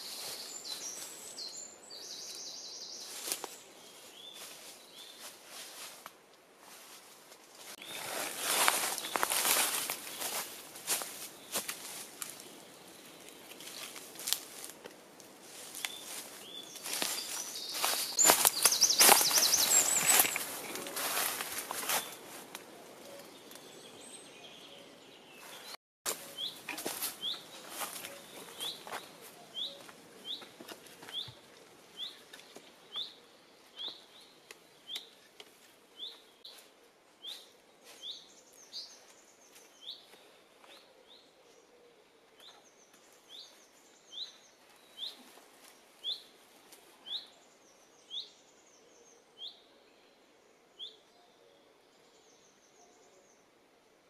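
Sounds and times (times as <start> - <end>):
footsteps through dry leaves: 0.0 - 1.3, 3.0 - 6.0, 6.6 - 12.6, 13.5 - 14.8, 15.4 - 22.5, 25.5 - 30.0
bird twittering: 16.8 - 21.3.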